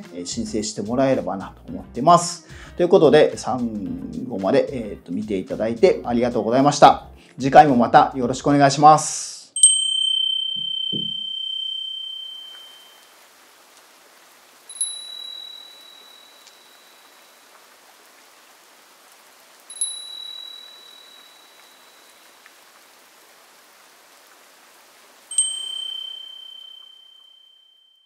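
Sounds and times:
small bell ringing: 9.6s - 13.1s, 14.7s - 17.2s, 19.7s - 22.2s, 25.3s - 28.0s
faint steady hiss: 10.4s - 27.8s.

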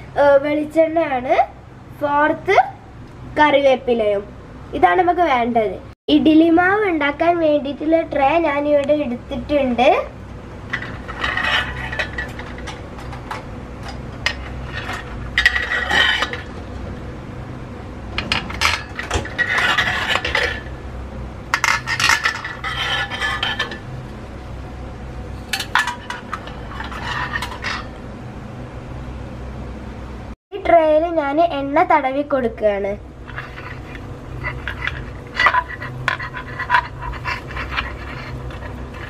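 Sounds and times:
metal plates clinking and scraping: 10.7s - 16.8s, 18.2s - 20.8s, 21.5s - 23.9s, 25.4s - 28.0s, 33.2s - 39.0s.

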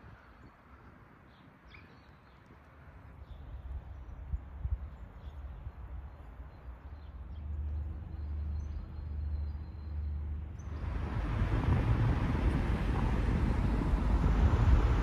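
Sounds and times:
traffic noise: 2.5s - 15.0s
wind on microphone: 10.7s - 15.0s.

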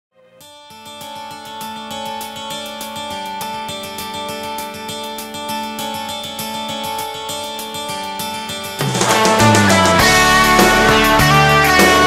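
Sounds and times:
plucked guitar music: 0.2s - 12.0s.

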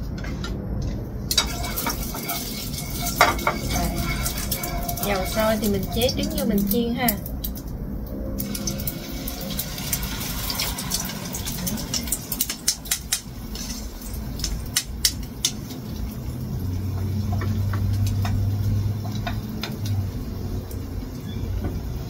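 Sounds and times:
low steady hum: 0.0s - 22.0s
chopsticks tapping on a pan: 1.3s - 7.3s, 11.8s - 15.8s, 16.9s - 20.0s
egg frying in hot oil: 1.3s - 22.0s.

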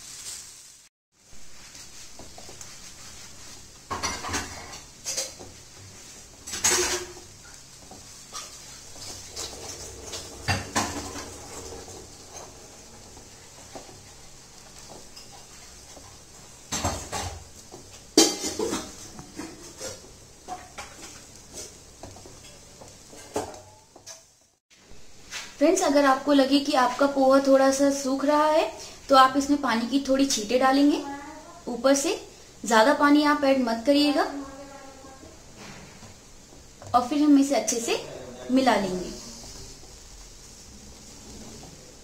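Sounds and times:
spatula scraping metal pan: 2.2s - 14.2s.

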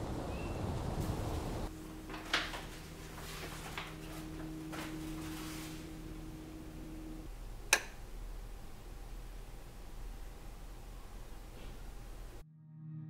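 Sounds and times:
steady low hum: 0.0s - 12.4s
curtain fabric swishing: 1.0s - 6.5s.

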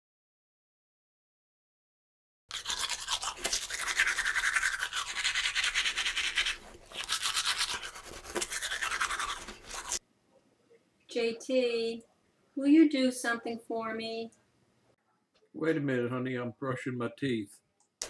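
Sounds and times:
toothbrush scrubbing teeth: 2.5s - 10.0s.

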